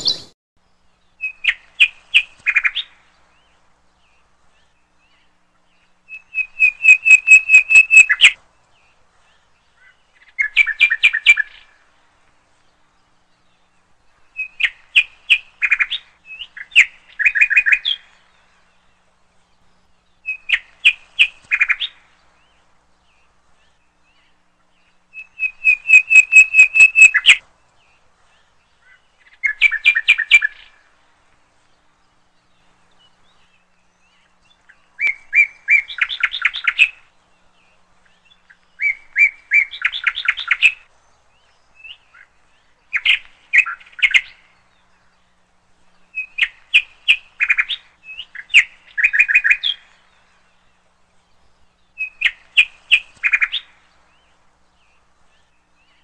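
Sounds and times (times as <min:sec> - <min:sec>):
bird chirping rapidly: 0:00.0 - 0:00.4, 0:06.1 - 0:08.4, 0:25.1 - 0:27.4.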